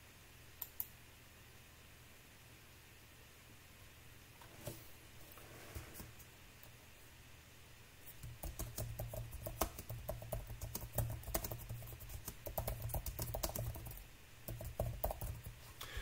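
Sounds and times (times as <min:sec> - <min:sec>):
typing on computer keyboard: 0:08.2 - 0:15.6.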